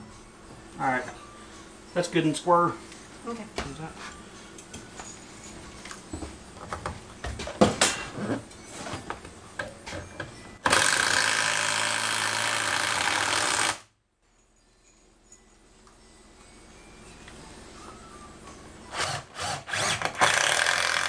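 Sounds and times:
cordless drill driving a screw: 0:10.6 - 0:13.8, 0:18.9 - 0:21.0.

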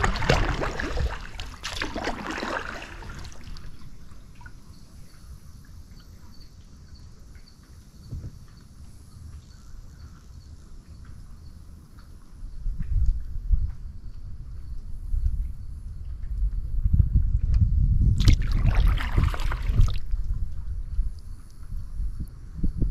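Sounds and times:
paddle strokes splashing water: 0:00.0 - 0:05.1, 0:18.2 - 0:20.2
water lapping at hull: 0:00.0 - 0:07.9, 0:18.2 - 0:21.8
insect chirping faintly: 0:00.0 - 0:22.9.

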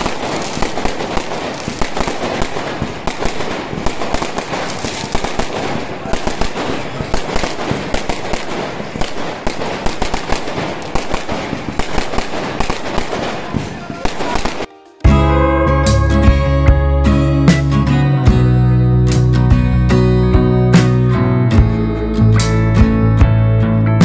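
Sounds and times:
fireworks bangs and crackles: 0:00.0 - 0:18.5.

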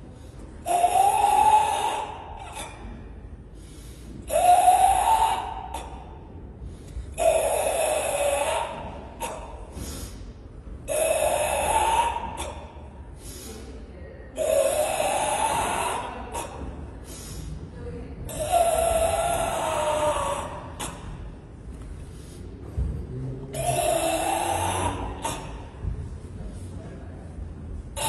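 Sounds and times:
short sharp breaths: 0:02.3 - 0:04.4, 0:08.8 - 0:10.6, 0:12.4 - 0:13.9, 0:16.5 - 0:17.8, 0:20.8 - 0:22.8
forceful hissing exhalations: 0:09.7 - 0:10.3, 0:17.0 - 0:17.6.

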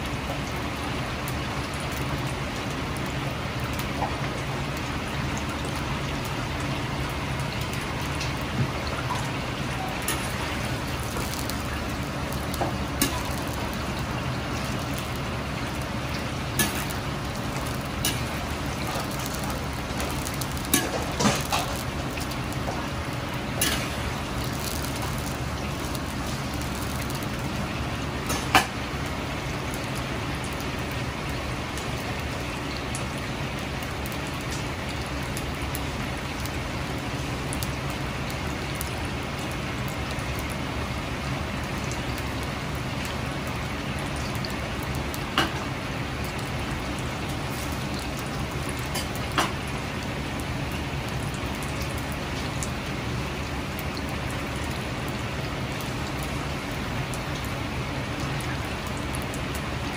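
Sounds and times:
low steady hum: 0:00.0 - 0:59.9
oil hissing and bubbling: 0:00.0 - 0:59.9
metal ladle clicks and pops: 0:12.3 - 0:13.7, 0:16.6 - 0:17.0.

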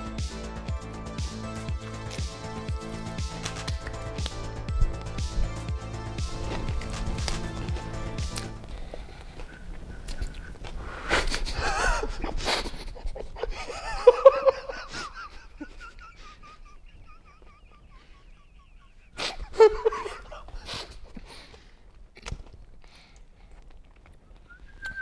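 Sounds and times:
men laughing: 0:11.2 - 0:20.8
thin wavering whistle: 0:24.5 - 0:25.0.

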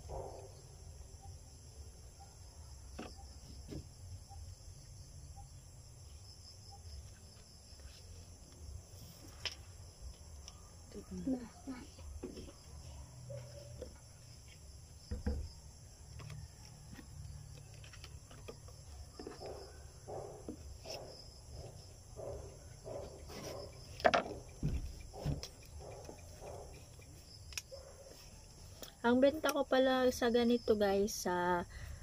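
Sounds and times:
insects droning: 0:00.0 - 0:32.0
plastic bottle knocks and rustles: 0:15.1 - 0:15.6, 0:24.0 - 0:25.4.

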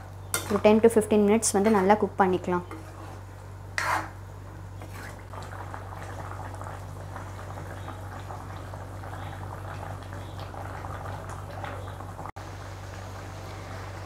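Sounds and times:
low even hum: 0:00.0 - 0:14.0
thick gravy bubbling: 0:04.6 - 0:14.0.

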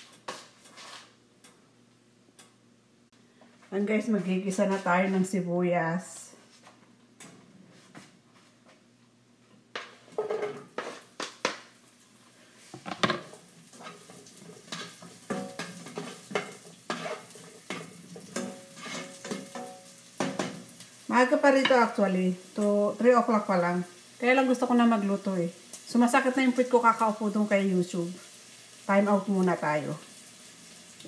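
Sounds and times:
spatula scraping frying pan: 0:09.8 - 0:11.2, 0:13.2 - 0:20.8
onions sizzling: 0:09.8 - 0:31.0.

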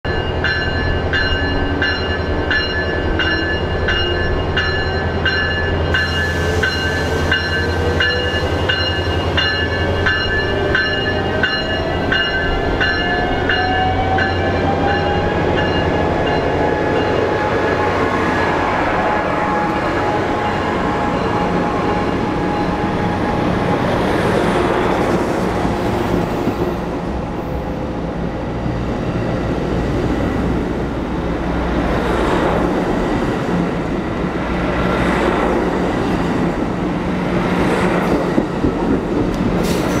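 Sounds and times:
train wheels rumbling on rail: 0:00.1 - 0:40.0.

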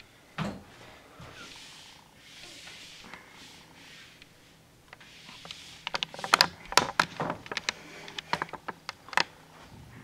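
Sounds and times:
eraser wiping whiteboard: 0:01.2 - 0:06.5
marker tapping and squeaking: 0:05.0 - 0:09.0.

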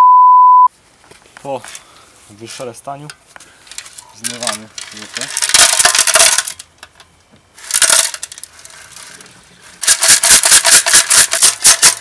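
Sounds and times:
pebbles rattling in metal tank: 0:04.2 - 0:06.7, 0:07.6 - 0:12.0.

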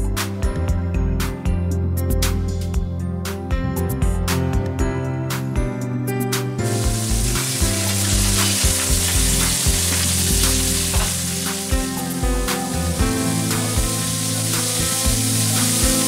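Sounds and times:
soft guitar music: 0:00.0 - 0:16.0
shellfish sizzling in hot oil: 0:06.7 - 0:16.0.

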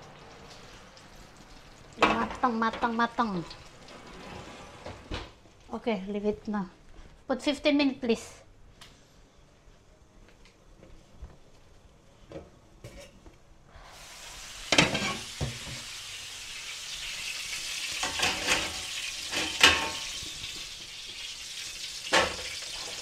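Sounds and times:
food sizzling in a pan: 0:13.8 - 0:23.0.

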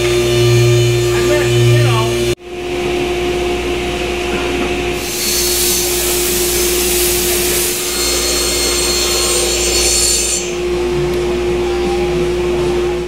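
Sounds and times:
machine hum: 0:00.0 - 0:13.0
saw blade cutting board: 0:05.0 - 0:10.7.

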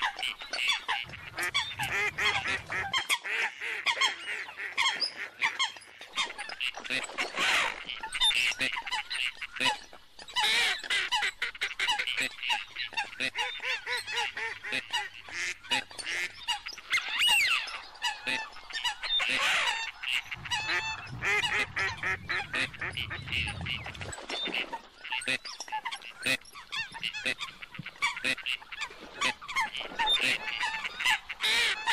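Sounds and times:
waterfowl flock calling: 0:00.0 - 0:31.9
low rumble: 0:20.2 - 0:24.1.

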